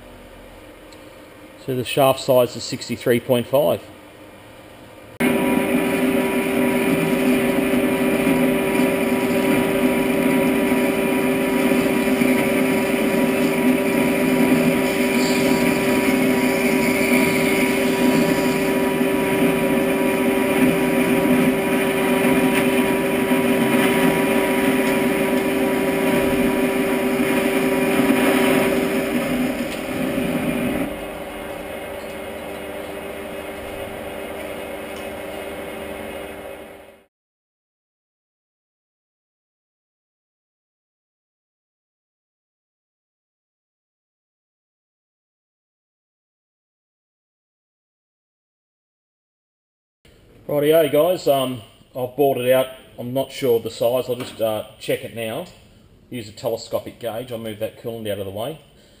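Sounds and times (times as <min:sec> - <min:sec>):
metal lathe gear whine: 0:05.2 - 0:37.0.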